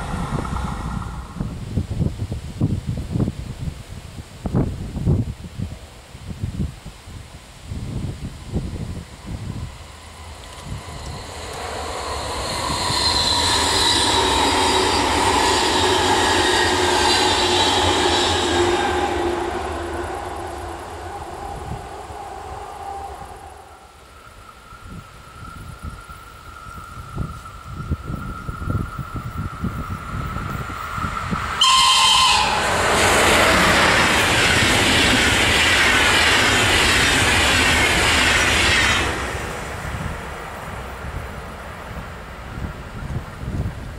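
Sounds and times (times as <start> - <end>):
train motor whine: 0.0 - 1.8, 8.3 - 25.7, 26.4 - 40.1
electric train passing on rails: 0.0 - 43.9.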